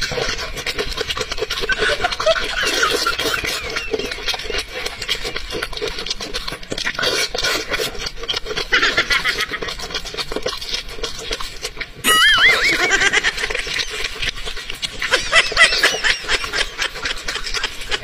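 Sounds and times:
wet chewing and smacking: 0.0 - 18.0
wavering high-pitched squeal: 12.0 - 12.8.

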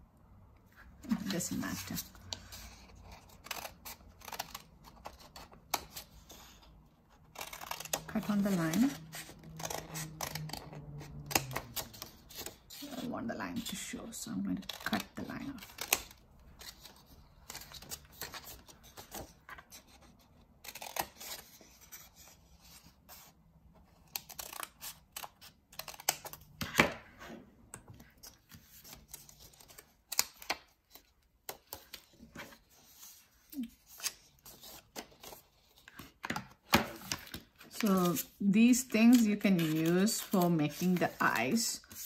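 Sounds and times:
scissors snipping paper: 1.1 - 6.6, 7.3 - 13.8, 33.5 - 42.0
paper handling: 28.0 - 42.0.

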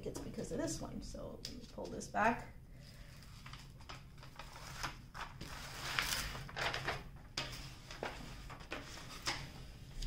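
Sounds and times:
plastic film peeling and crackling: 3.1 - 10.0.

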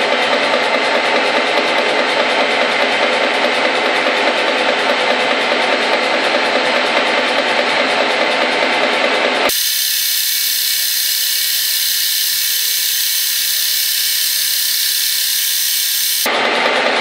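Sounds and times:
milling machine cutting metal: 9.5 - 16.3.

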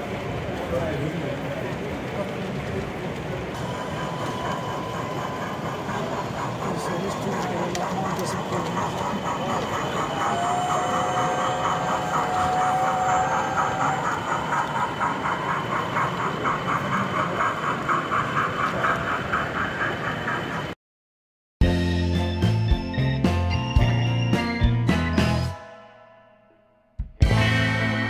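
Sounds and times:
exhibition hall background noise: 0.0 - 20.5
model steam train running: 0.0 - 20.8.

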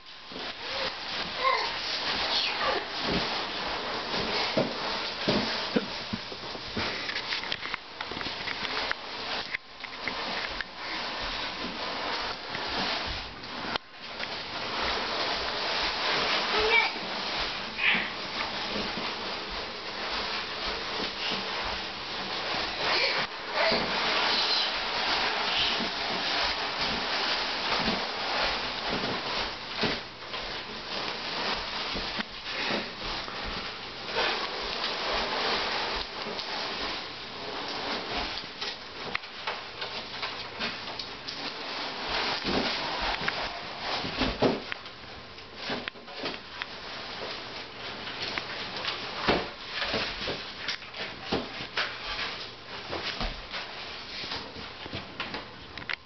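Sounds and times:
cardboard box scraping on floor: 0.0 - 7.5, 8.2 - 44.7.

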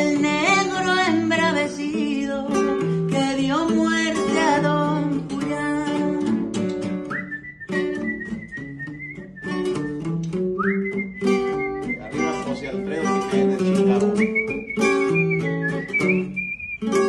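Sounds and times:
acoustic guitar strummed: 0.0 - 17.0
high whistled note: 7.1 - 12.3, 14.2 - 17.0.

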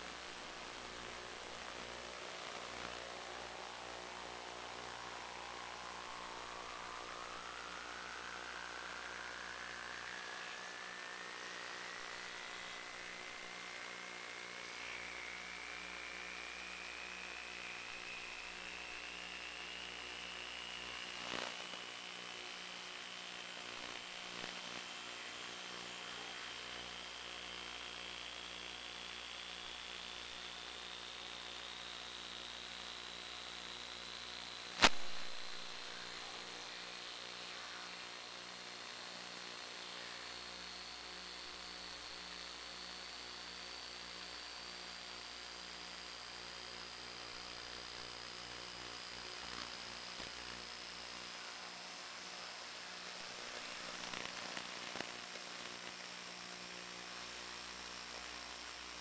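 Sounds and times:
electric motor whine: 0.0 - 59.0
hiss and hum: 0.0 - 59.0
pulsing low hum: 0.2 - 21.3
brief crackle: 21.1 - 21.9, 34.7 - 36.8, 53.2 - 56.1.

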